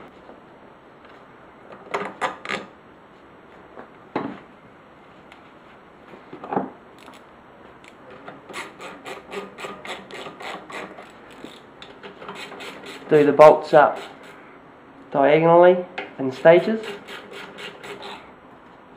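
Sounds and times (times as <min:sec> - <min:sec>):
ratchet clicking: 0:07.0 - 0:07.2, 0:07.8 - 0:11.7.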